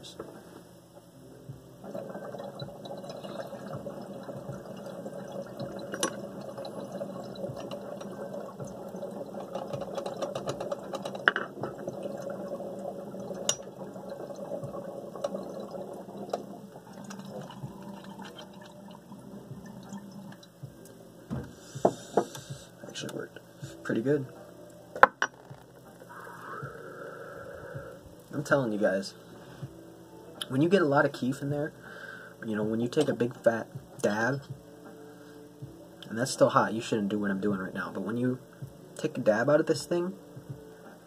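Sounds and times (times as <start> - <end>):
water bubbling and gurgling: 1.8 - 20.7.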